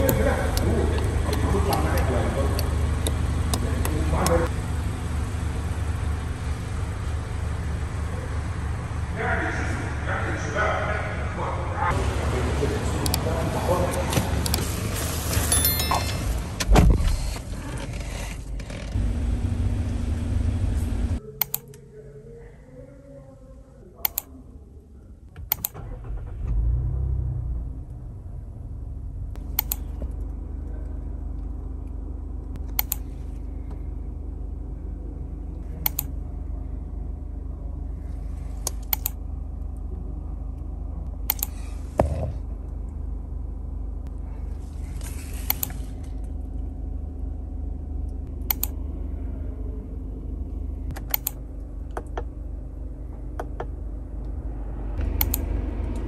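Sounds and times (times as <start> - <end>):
car engine idling: 0.0 - 21.2, 25.3 - 56.0
sharp clicks: 25.4 - 25.8, 29.4 - 30.0, 32.6 - 33.0, 35.8 - 36.1, 38.6 - 39.2, 41.3 - 41.5, 48.4 - 48.8, 50.9 - 52.3, 55.2 - 55.4.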